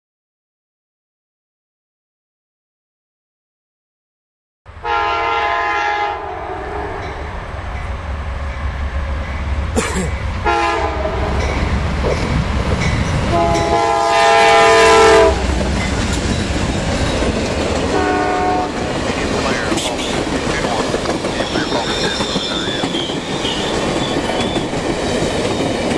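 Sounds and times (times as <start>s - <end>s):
train rumble: 4.7s - 25.9s
train horn blasts: 4.8s - 7.4s, 10.4s - 11.5s, 13.3s - 15.6s, 17.9s - 18.9s
train wheels clattering: 15.4s - 25.9s.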